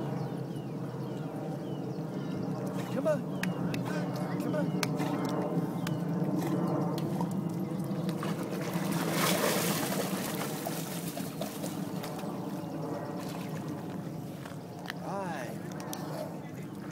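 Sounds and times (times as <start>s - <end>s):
dog swimming splashing water: 6.3s - 12.5s.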